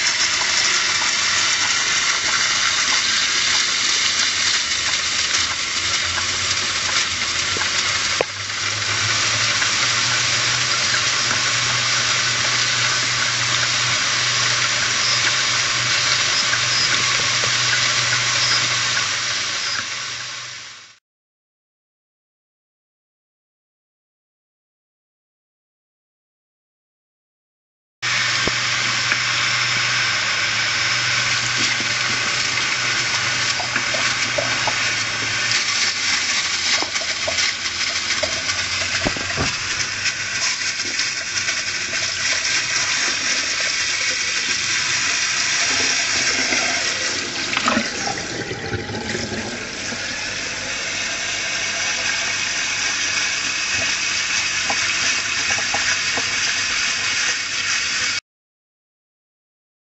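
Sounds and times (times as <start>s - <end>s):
water pouring over hard drive: 0.0s - 19.8s, 30.6s - 58.0s.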